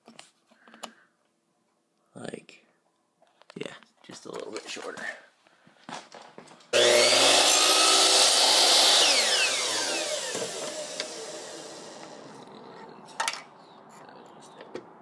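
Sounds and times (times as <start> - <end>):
miter saw cutting: 6.7 - 12.4
saw blade spinning down: 6.8 - 12.3.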